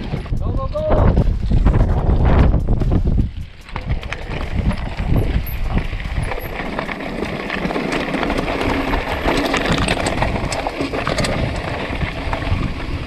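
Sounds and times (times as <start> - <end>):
bike rattling: 0.0 - 13.0
wind rumble on microphone: 0.0 - 13.0
tyres crunching over stones: 2.6 - 13.0.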